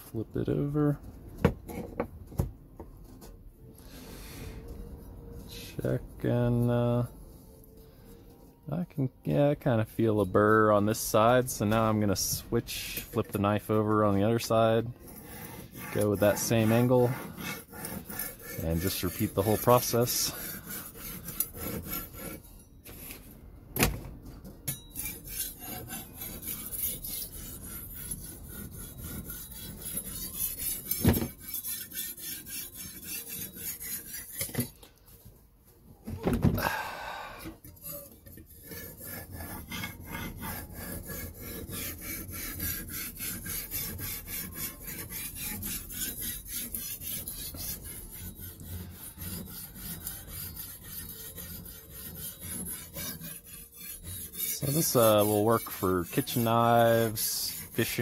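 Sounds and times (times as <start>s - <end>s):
knife scraping on sharpening stone: 15.0s - 23.2s, 24.7s - 34.8s, 37.5s - 58.0s.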